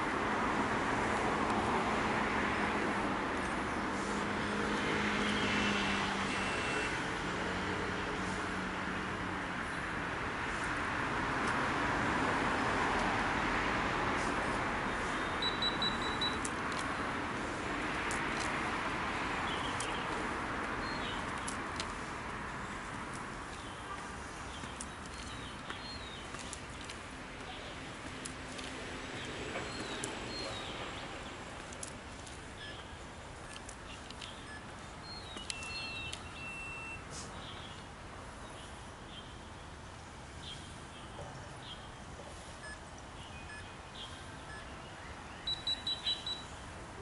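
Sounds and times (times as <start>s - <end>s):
traffic noise: 0.0s - 47.0s
bird chirps: 15.1s - 16.4s, 32.6s - 37.7s, 42.6s - 46.6s.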